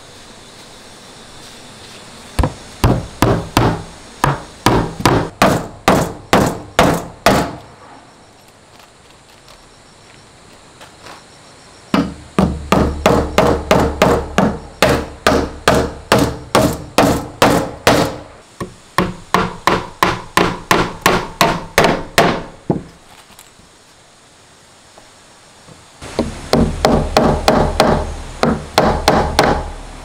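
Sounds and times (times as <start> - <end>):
hammer driving nails into wood: 2.4 - 7.7, 12.0 - 18.2.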